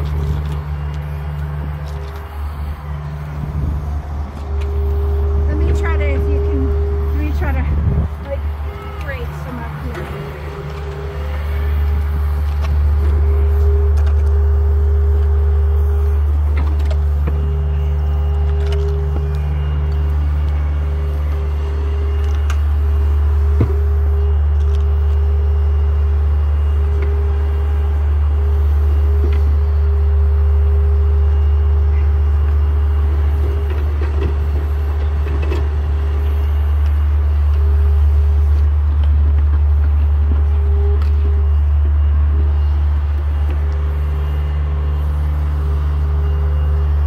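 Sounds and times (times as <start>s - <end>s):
excavator engine drone: 0.0s - 47.0s
faint hydraulic whine: 0.0s - 47.0s
higher hum: 0.0s - 47.0s.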